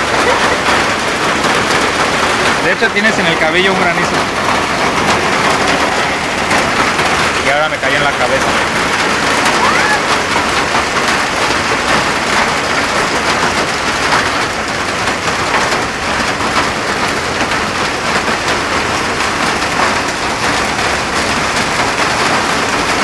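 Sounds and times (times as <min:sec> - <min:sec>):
hail and rain on street: 0:00.0 - 0:23.0.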